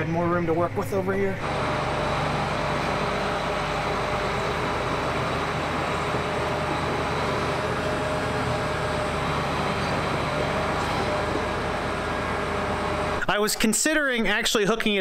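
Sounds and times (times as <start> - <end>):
tractor diesel engine idling: 1.4 - 13.2.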